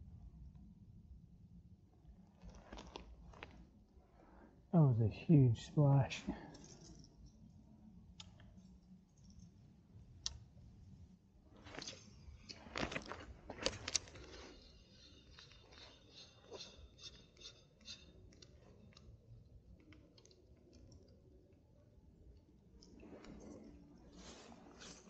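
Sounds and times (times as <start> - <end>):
fishing tackle clicks and crunches: 2.4 - 3.6, 11.6 - 16.0
small irregular clicks: 6.4 - 10.6, 11.6 - 25.0.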